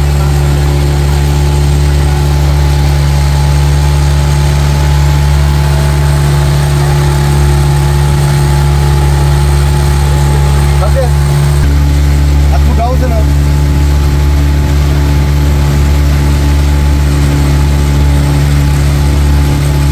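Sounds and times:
motorboat engine droning: 0.0 - 19.9.

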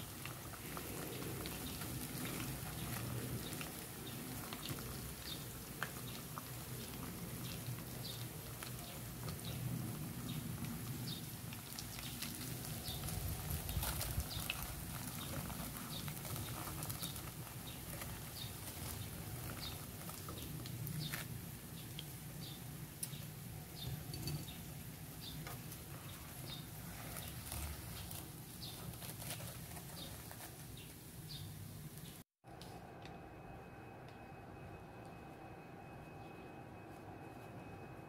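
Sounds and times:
oil sizzling and popping in pan: 0.0 - 27.5.

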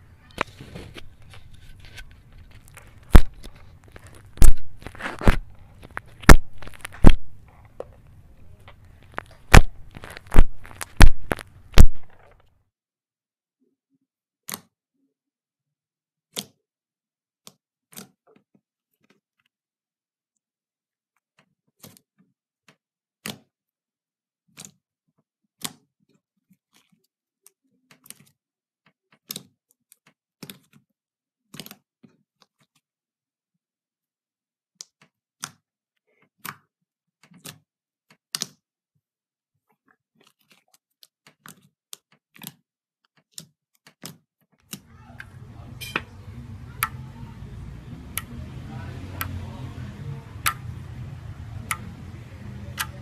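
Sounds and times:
slime crackling: 0.4 - 7.5, 8.8 - 12.4
slime popping and clicking: 4.3 - 7.4, 9.2 - 12.2.

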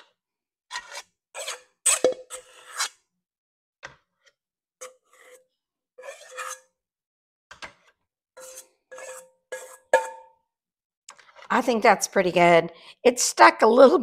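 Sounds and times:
spoon scraping metal bowl: 0.7 - 3.0, 4.8 - 6.8, 8.4 - 10.3.

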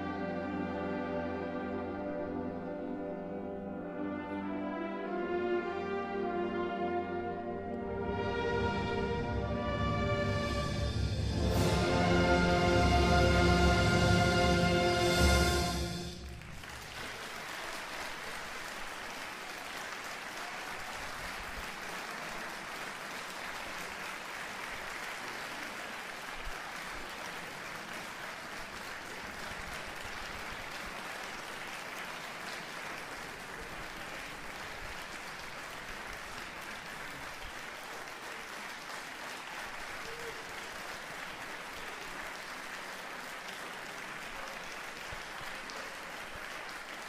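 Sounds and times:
audience applauding: 11.6 - 47.0.

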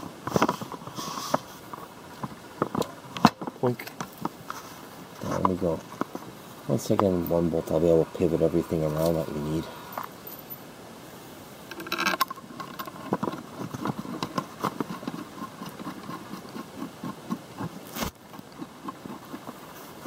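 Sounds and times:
metal parts clicking and tapping: 11.7 - 16.2.

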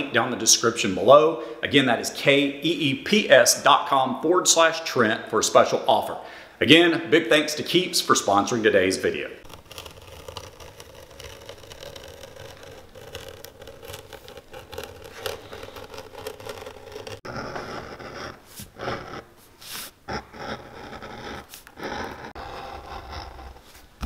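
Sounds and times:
knife cutting through leather: 9.4 - 24.0
leather tool scraping strokes: 9.4 - 24.0.

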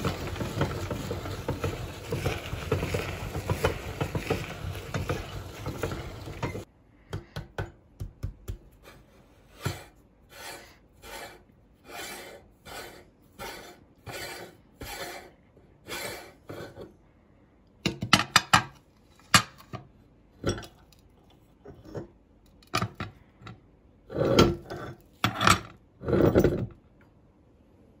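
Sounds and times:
meat grinder crunching popcorn: 0.0 - 6.7.

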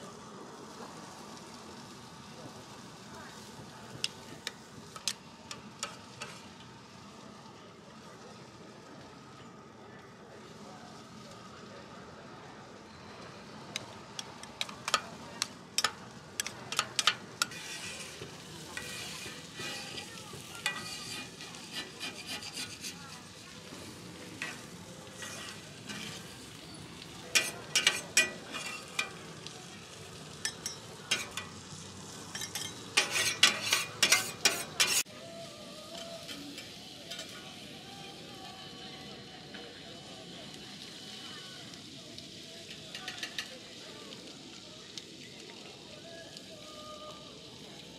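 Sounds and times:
food sizzling: 0.0 - 9.4, 10.4 - 47.9
metal spatulas scraping griddle: 14.4 - 15.1, 15.8 - 29.2, 30.4 - 31.6, 32.3 - 35.1, 36.0 - 37.4.

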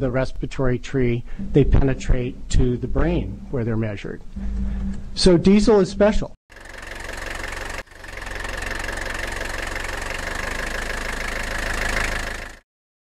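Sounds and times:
diesel truck engine idling: 6.5 - 12.6.

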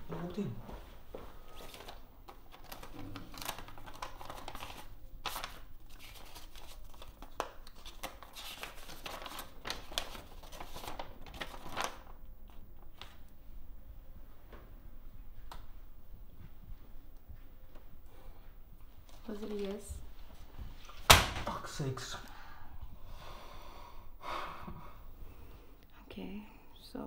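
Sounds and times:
paper rustling and crinkling: 1.5 - 13.3.

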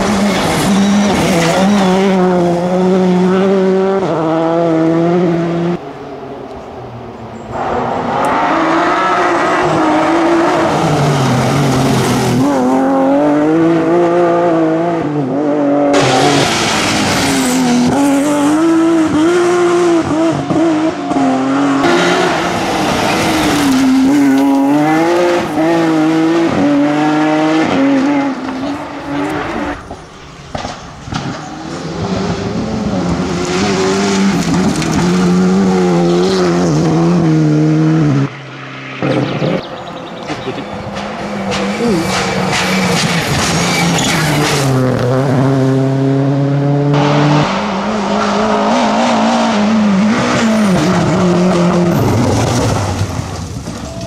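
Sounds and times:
rally car engines revving hard: 0.0 - 6.2, 7.4 - 53.8.

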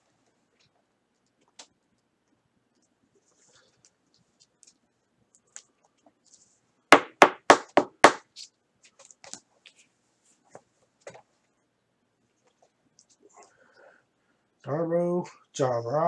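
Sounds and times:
cards knocking on tabletop: 7.0 - 8.3.

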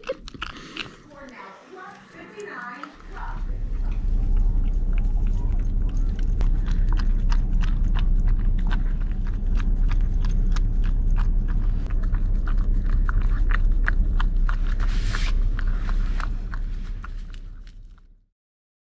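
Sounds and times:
puppy lapping wet licks: 0.0 - 17.6
steady low rumble: 0.0 - 18.3.

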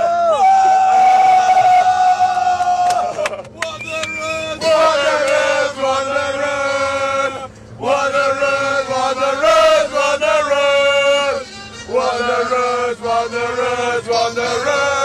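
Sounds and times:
men chanting: 4.3 - 15.0.

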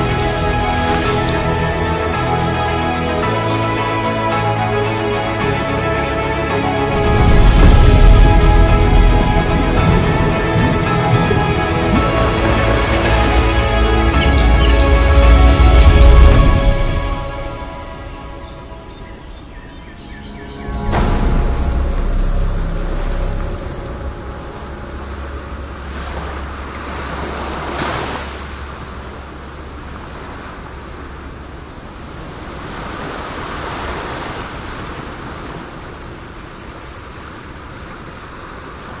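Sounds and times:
deep low hum: 20.0 - 27.4.

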